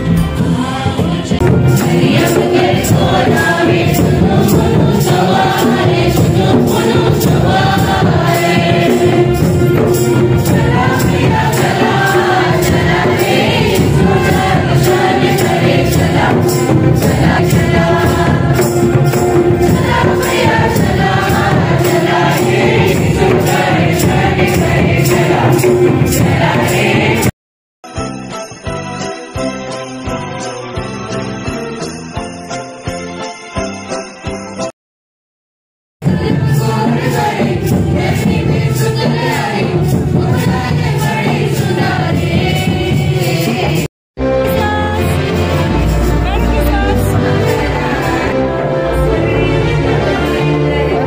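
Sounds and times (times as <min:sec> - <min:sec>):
steady percussion beat: 0:00.0 - 0:27.3, 0:36.0 - 0:43.9, 0:44.5 - 0:51.0
group singing a hymn: 0:00.1 - 0:27.3, 0:36.0 - 0:43.9, 0:46.5 - 0:51.0.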